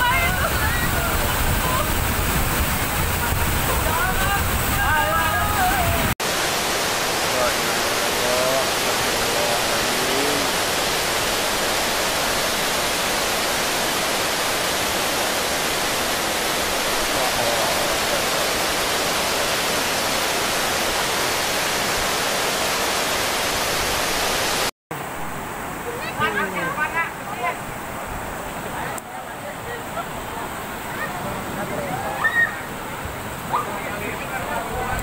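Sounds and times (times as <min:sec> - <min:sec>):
water rushing: 0:00.0 - 0:35.0.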